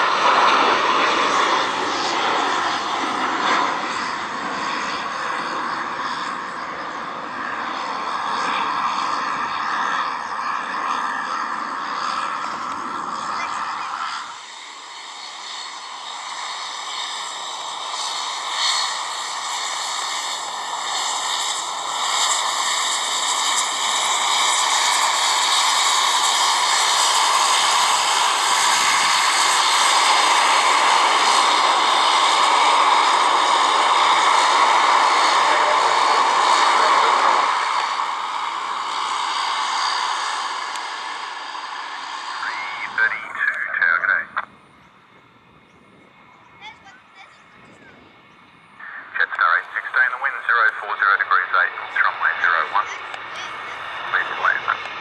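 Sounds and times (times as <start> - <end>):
turboprop plane taxiing: 0.0 - 55.0.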